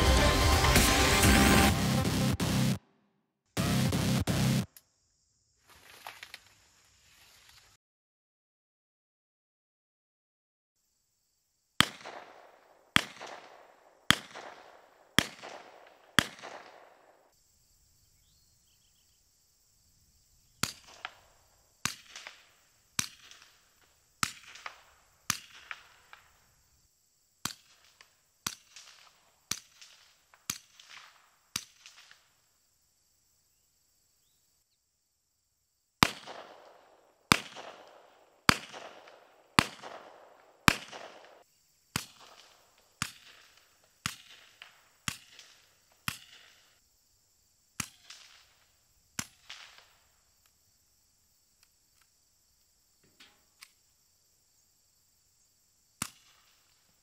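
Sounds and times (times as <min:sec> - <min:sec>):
loud unsuppressed gunshots: 0:11.8 - 0:17.1, 0:36.0 - 0:41.4
suppressed gunshots: 0:11.8 - 0:17.1, 0:36.0 - 0:41.4.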